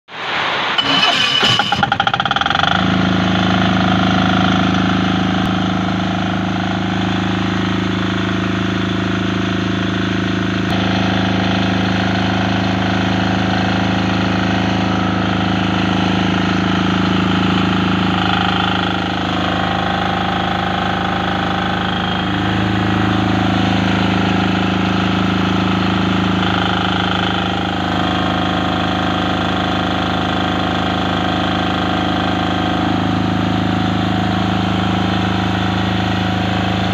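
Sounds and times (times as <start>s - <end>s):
generator engine running: 0.2s - 36.9s.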